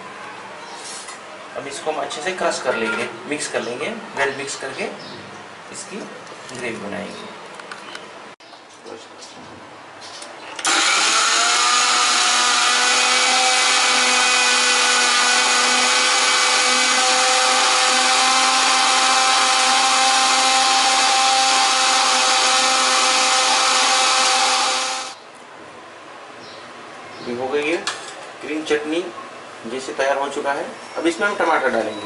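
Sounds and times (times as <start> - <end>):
electric mixer grinder running: 10.6 - 25.2.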